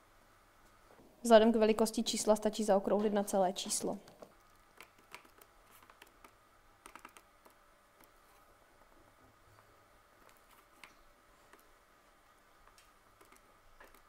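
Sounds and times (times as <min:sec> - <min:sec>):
calculator keys clicking: 0:04.8 - 0:08.1.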